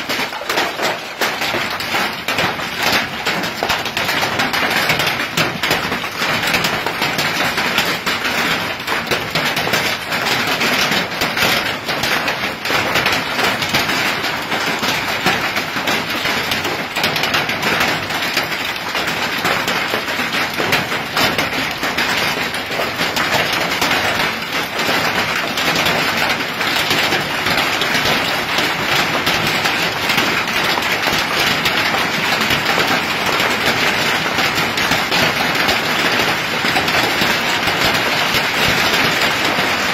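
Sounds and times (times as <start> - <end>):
hail and rain pelting: 0.0 - 39.9.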